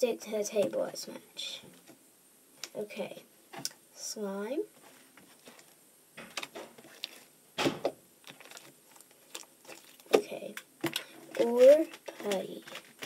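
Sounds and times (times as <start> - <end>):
slime squelching: 5.3 - 13.0.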